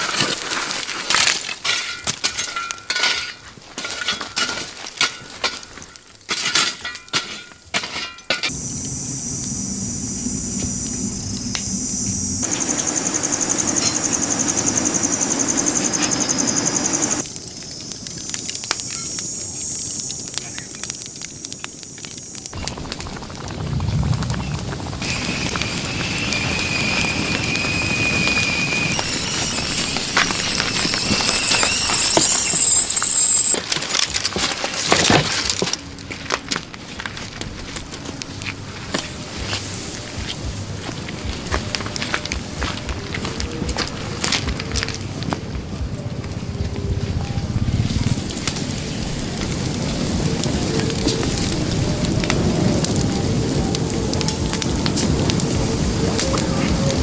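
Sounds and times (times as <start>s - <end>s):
wood fire crackling and popping: 0.0s - 57.0s
high-pitched whine: 8.5s - 17.3s, 25.0s - 34.3s, 38.7s - 57.0s.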